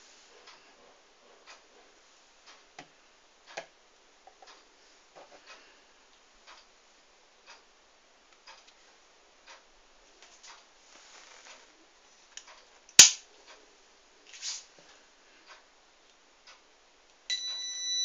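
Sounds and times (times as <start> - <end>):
faint regular ticking: 5.4 - 10.7, 14.8 - 17.7.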